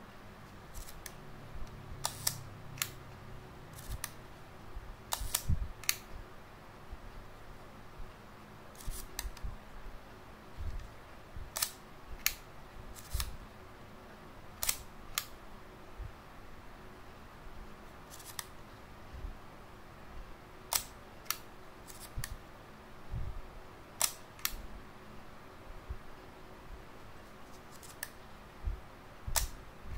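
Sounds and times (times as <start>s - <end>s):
camera shutter clicks: 2.0s - 3.0s, 5.1s - 6.0s.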